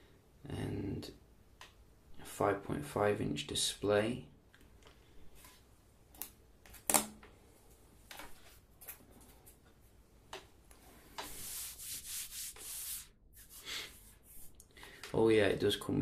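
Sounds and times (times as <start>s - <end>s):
rubbing on smartphone: 11.1s - 14.6s.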